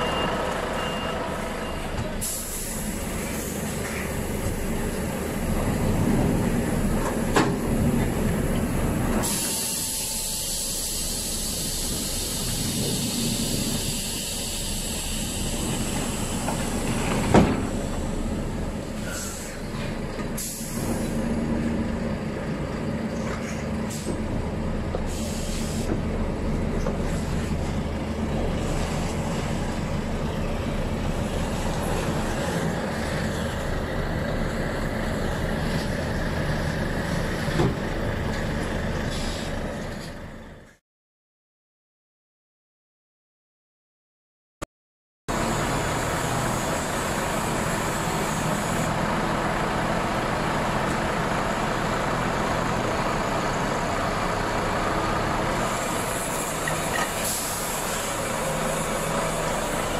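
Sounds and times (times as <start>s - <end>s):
air hissing: 9.2s - 16.9s, 25.1s - 25.9s, 55.8s - 59.9s.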